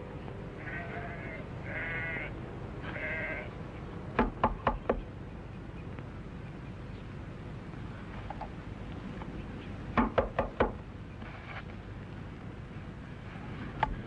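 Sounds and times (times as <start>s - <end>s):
animal bleating: 0.6s - 3.6s.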